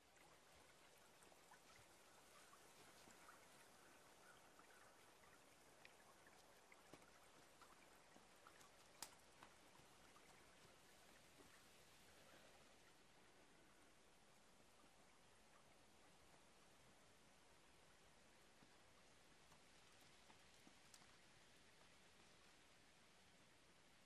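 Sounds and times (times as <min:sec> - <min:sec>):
trickling stream water: 0:00.0 - 0:24.0
small ticks: 0:00.1 - 0:11.7, 0:18.5 - 0:22.4.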